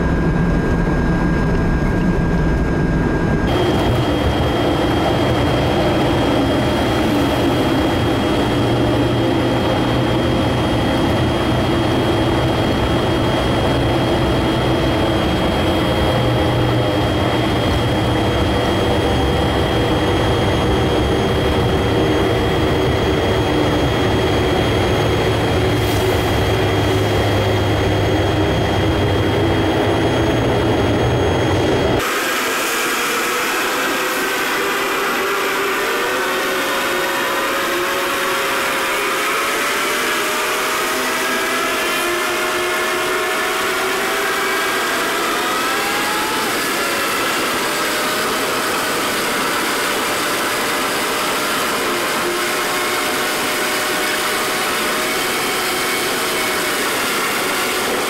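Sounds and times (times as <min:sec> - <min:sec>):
car engine and tyre rumble: 0:00.0 - 0:58.0
whirring with wavering pitch: 0:00.0 - 0:58.0.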